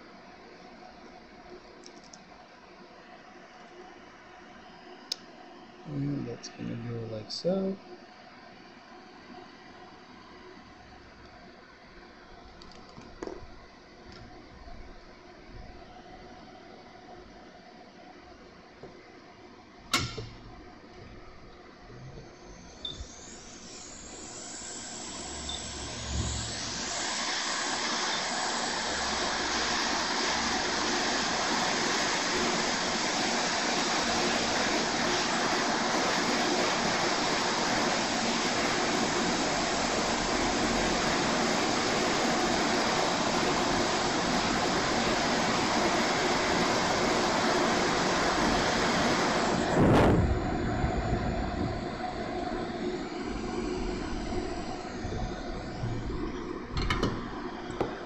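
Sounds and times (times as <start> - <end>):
hot air station blowing: 21.3 - 58.0.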